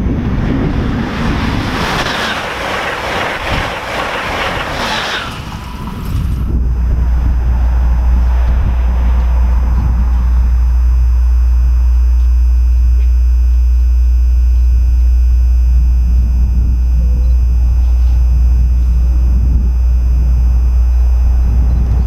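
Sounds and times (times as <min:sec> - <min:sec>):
train approaching: 0:00.0 - 0:12.3
wind on microphone: 0:00.0 - 0:22.0.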